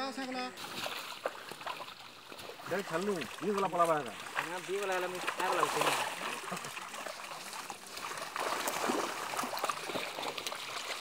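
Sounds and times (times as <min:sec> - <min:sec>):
water splashing and trickling: 0:00.0 - 0:11.0.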